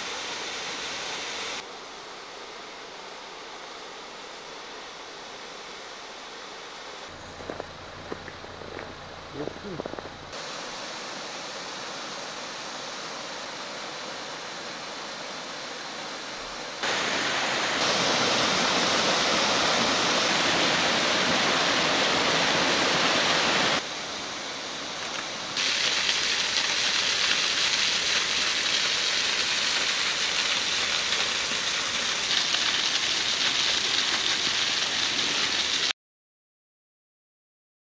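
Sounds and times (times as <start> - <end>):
waterfall rushing: 16.8 - 23.8.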